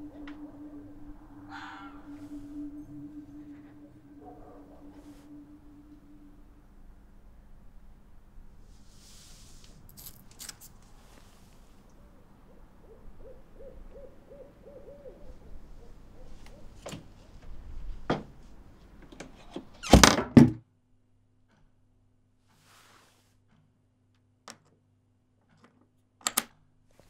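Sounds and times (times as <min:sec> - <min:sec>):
short wavering low tones: 0:00.0 - 0:08.5
low rumbling drone: 0:00.0 - 0:08.8
faint steady hum: 0:00.0 - 0:10.0.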